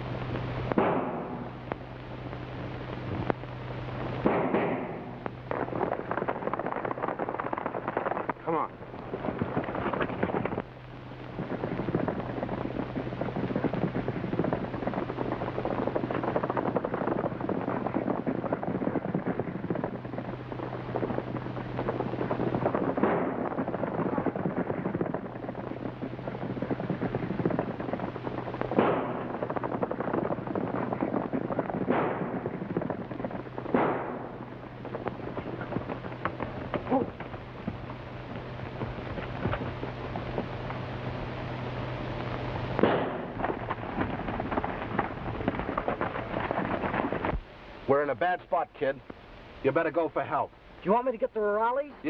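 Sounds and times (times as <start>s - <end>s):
low film soundtrack hum: 0.0s - 52.0s
gunshots crackling: 0.7s - 1.7s, 4.2s - 8.4s, 11.3s - 40.6s, 42.8s - 47.3s
loud single gunshots: 0.8s - 1.5s, 4.2s - 5.2s, 28.8s - 29.3s, 31.9s - 32.4s, 33.7s - 34.3s, 42.8s - 43.3s.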